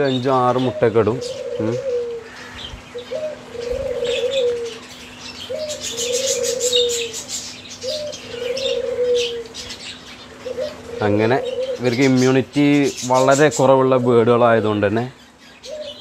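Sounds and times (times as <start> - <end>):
dove cooing: 0.0 - 16.0
finches chirping and twittering: 0.0 - 16.0.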